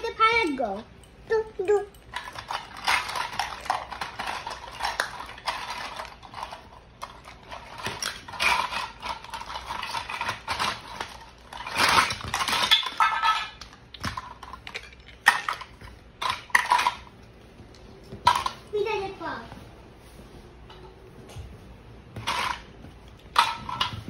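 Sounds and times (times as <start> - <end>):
toy pots and pans clattering: 1.6 - 17.1, 18.2 - 18.7, 22.2 - 24.0.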